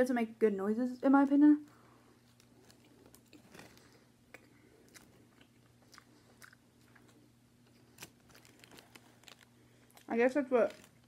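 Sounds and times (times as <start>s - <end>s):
low steady hum: 0.0s - 11.0s
chewing mouth clicks: 4.3s - 7.2s.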